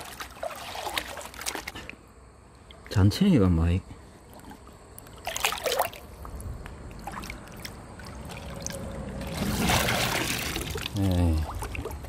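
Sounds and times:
splash in stream: 0.0 - 1.8, 7.1 - 12.0
water pouring through mesh: 0.0 - 1.9, 7.0 - 12.0
water sloshing: 0.0 - 2.0, 4.2 - 12.0.

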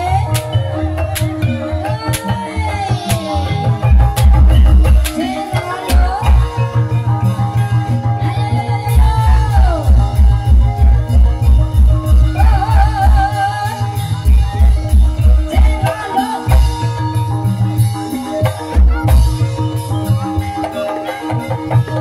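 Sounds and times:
heavy low drum beat: 8.9 - 20.2.

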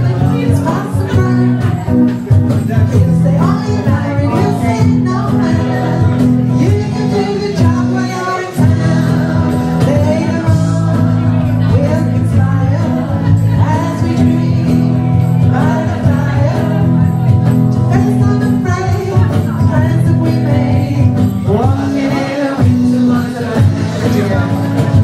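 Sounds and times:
woman singing into microphone: 0.0 - 2.1, 2.9 - 17.0
electric guitar: 0.0 - 25.0.

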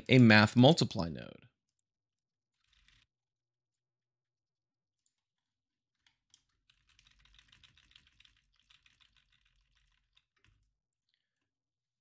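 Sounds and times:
typing on keyboard: 2.6 - 3.1, 6.0 - 10.7.

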